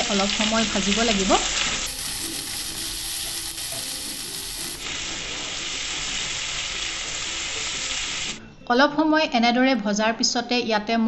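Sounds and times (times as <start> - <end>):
onions sizzling in hot oil: 0.0 - 8.4.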